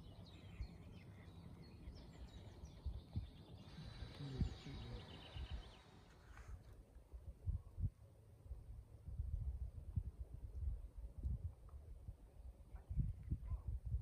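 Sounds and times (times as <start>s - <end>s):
songbirds chirping: 0.0s - 6.9s.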